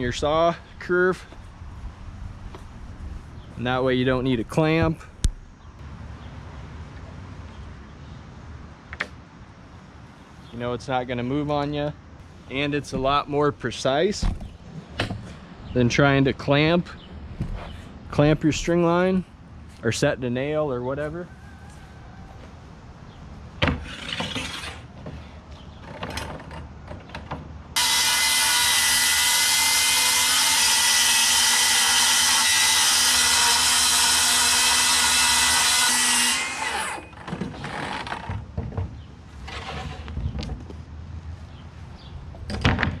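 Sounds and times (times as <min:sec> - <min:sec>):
circular saw cutting plywood: 0:23.8 - 0:24.9, 0:27.8 - 0:38.3.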